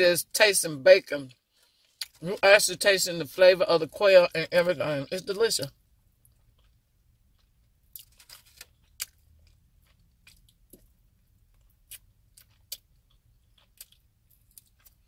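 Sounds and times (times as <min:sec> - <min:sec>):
chewing food: 0:06.2 - 0:15.0.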